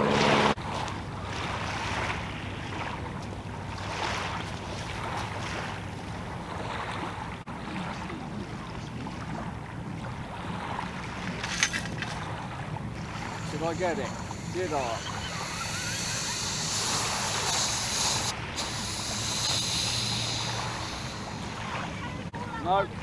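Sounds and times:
low steady hum: 0:00.0 - 0:23.0
waves washing on shingle: 0:00.0 - 0:23.0
wind on microphone: 0:06.4 - 0:22.4.

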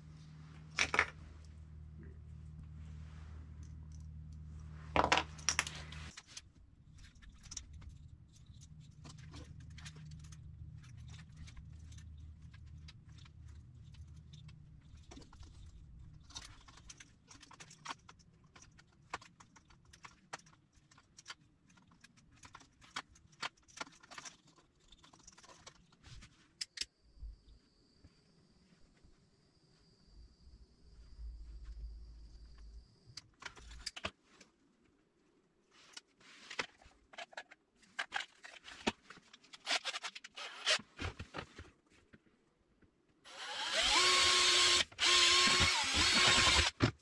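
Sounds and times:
low steady hum: 0:00.0 - 0:17.8
clicks and rattles of wires: 0:03.5 - 0:27.0, 0:32.5 - 0:35.0, 0:35.7 - 0:43.1.

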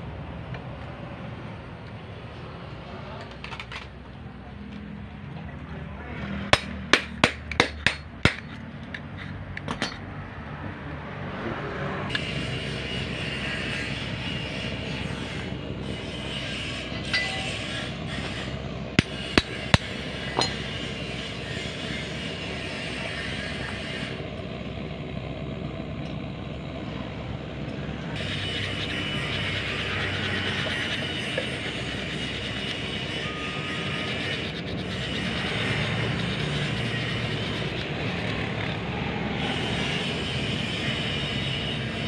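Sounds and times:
sharp metallic taps: 0:06.5 - 0:10.0.

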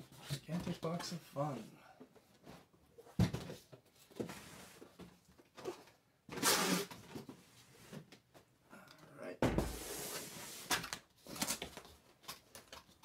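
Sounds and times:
cardboard rustling and scraping: 0:09.6 - 0:12.1.

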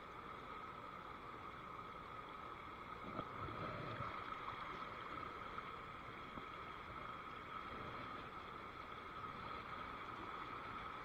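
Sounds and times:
faint high hum: 0:00.0 - 0:11.0.

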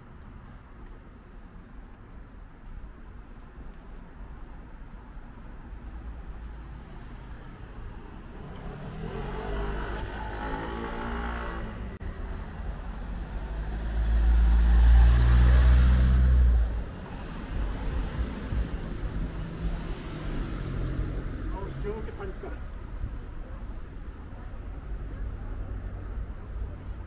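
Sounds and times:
vehicles passing on street: 0:00.0 - 0:27.0
vehicle engine rumbling past: 0:07.2 - 0:21.9.

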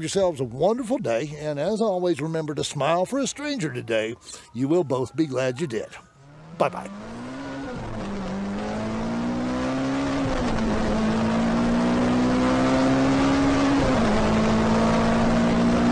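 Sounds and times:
car engine accelerating: 0:06.1 - 0:15.9.

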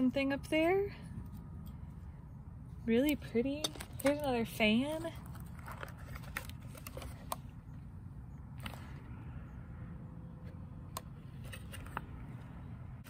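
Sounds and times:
paper fan clicks and handling: 0:03.0 - 0:07.6.

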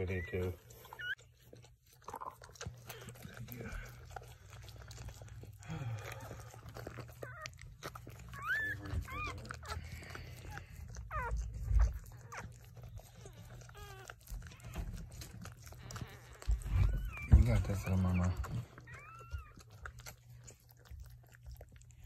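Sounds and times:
puppy squeaking: 0:00.0 - 0:05.3, 0:06.0 - 0:22.0
dog licking wetly: 0:00.0 - 0:22.0
rustling: 0:00.0 - 0:22.0.

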